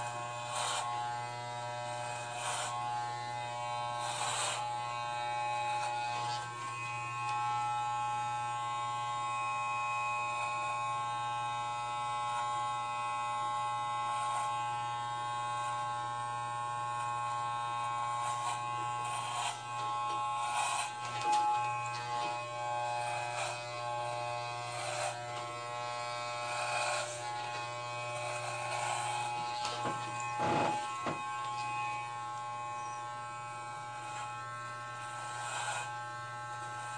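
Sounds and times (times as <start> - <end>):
clipper blades rasping through hair: 0.0 - 8.3, 16.8 - 36.9
electric hair clippers buzzing: 0.0 - 36.9.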